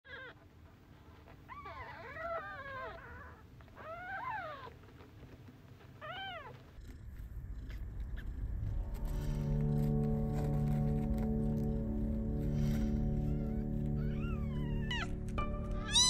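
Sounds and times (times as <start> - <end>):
low rumble: 6.6 - 16.0
kittens mewing: 12.4 - 16.0.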